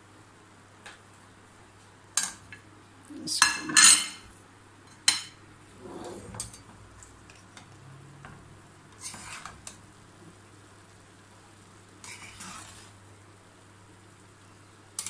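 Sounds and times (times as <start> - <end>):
metal spoon scraping a pan: 8.9 - 9.8, 12.0 - 13.0.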